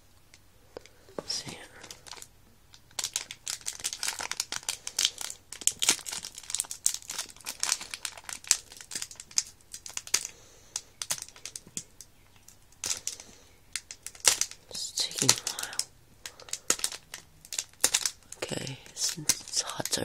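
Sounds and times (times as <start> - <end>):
foil wrapper crinkling: 1.5 - 20.0.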